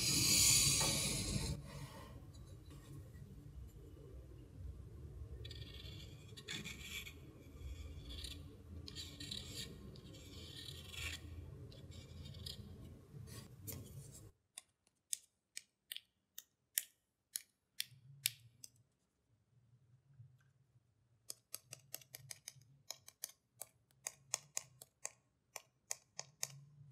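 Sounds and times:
pen scratching on paper: 5.5 - 13.5.

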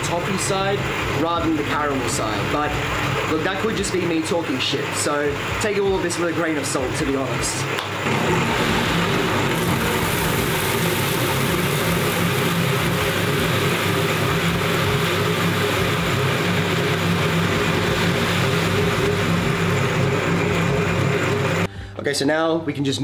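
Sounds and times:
grain mill motor hum: 0.0 - 21.7
grain grinding: 8.0 - 21.7.

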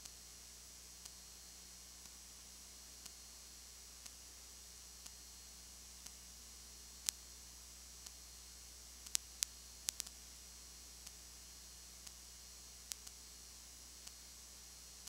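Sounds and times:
steady hiss: 0.0 - 15.0
sharp clicks: 9.0 - 10.2, 12.9 - 13.2.

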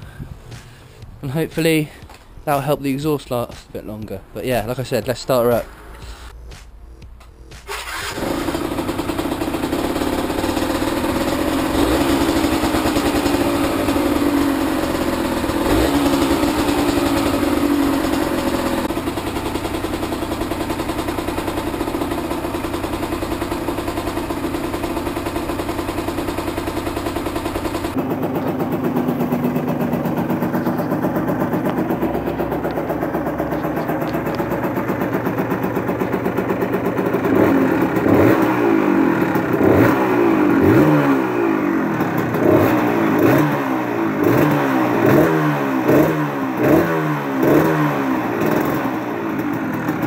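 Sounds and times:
motorcycle engine starting and idling: 0.0 - 50.0.

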